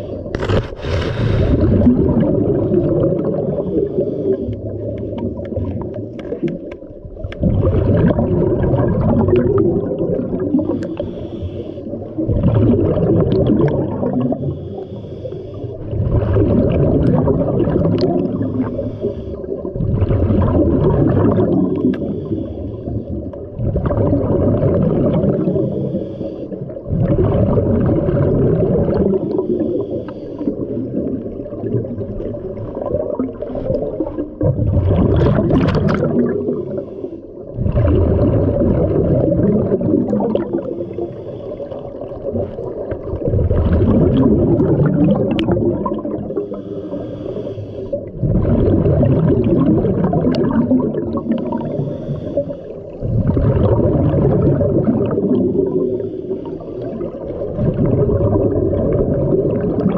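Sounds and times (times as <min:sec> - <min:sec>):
regulator inhalations: 0:00.0 - 0:01.9, 0:03.6 - 0:04.9, 0:10.6 - 0:12.2, 0:14.3 - 0:15.9, 0:18.4 - 0:19.6, 0:21.8 - 0:23.3, 0:25.4 - 0:26.7, 0:29.2 - 0:30.7, 0:36.5 - 0:37.5, 0:40.5 - 0:42.0, 0:46.3 - 0:48.2, 0:51.2 - 0:53.2, 0:55.5 - 0:57.3
diver exhaust bubbles: 0:00.0 - 0:59.9.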